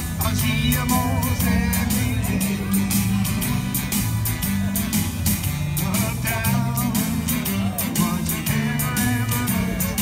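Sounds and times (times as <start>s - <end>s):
bass line: 0.0s - 10.0s
drum beat: 0.0s - 10.0s
electric guitar melody: 0.0s - 10.0s.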